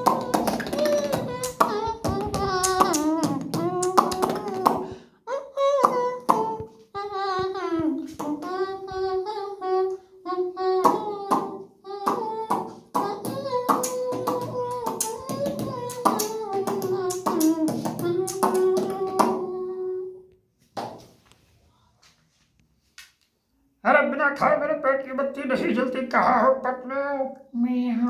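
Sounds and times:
mouth clicks and beats: 0.0 - 5.0, 5.6 - 9.4, 10.6 - 19.6
man humming melody line: 0.0 - 20.2.

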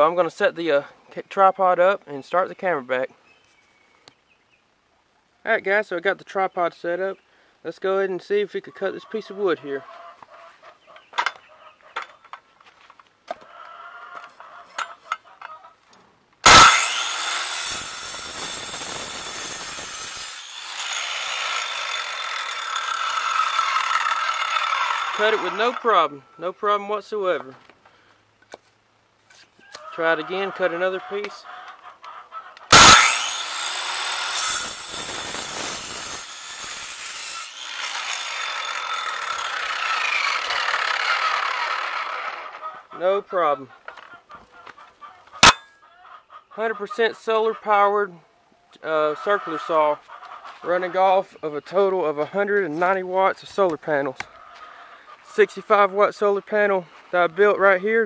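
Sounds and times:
circular saw cutting wood: 16.4 - 26.1, 32.7 - 42.6.

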